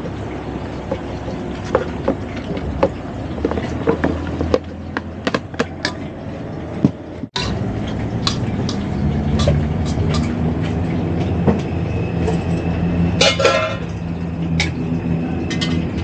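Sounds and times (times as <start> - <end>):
metal tongs clinking on bowls: 7.4 - 10.8, 12.2 - 16.0.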